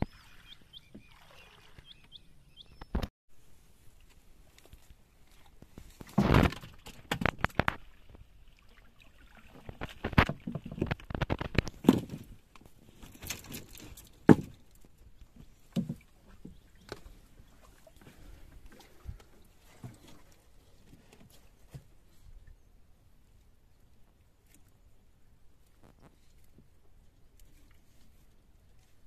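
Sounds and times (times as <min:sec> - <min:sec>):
water splashes: 0:00.0 - 0:02.2, 0:04.7 - 0:12.2, 0:15.5 - 0:20.6.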